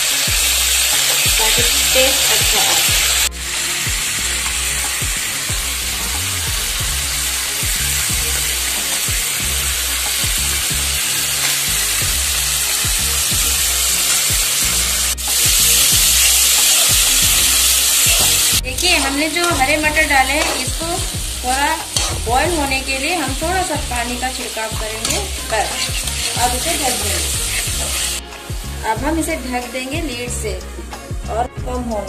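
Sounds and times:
vegetables sizzling in oil: 0.0s - 30.4s
spatula scraping metal pan: 17.5s - 28.2s.

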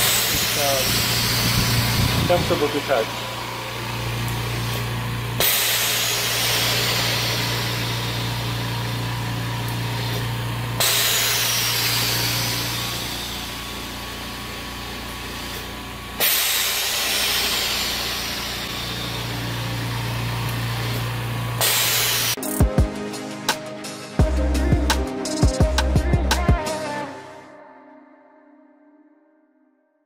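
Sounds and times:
valve releasing loud hiss: 0.0s - 22.6s
air compressor humming: 0.0s - 26.7s.

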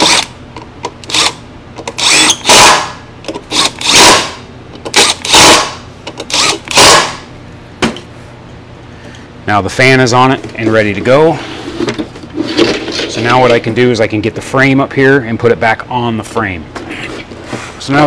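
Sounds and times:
impact driver bursts: 0.0s - 0.3s, 1.1s - 7.2s.

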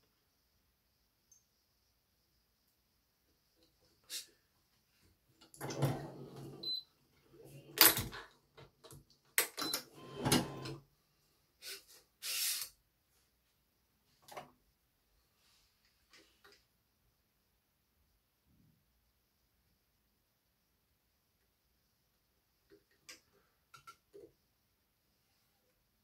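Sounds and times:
short hiss: 4.1s - 4.5s, 11.6s - 12.8s.

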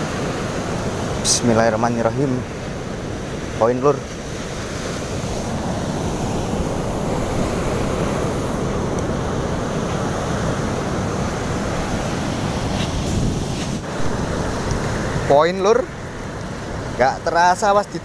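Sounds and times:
wind on the microphone: 0.0s - 17.0s
ocean surf on a beach: 0.0s - 18.0s.

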